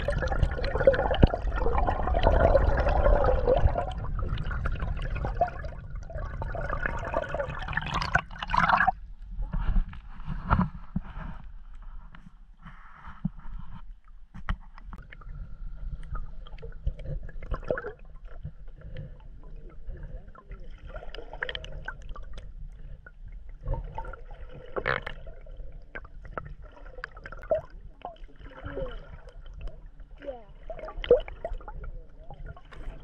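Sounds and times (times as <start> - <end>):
muffled underwater gurgling: 0.0 - 8.9
low underwater rumble: 0.0 - 33.0.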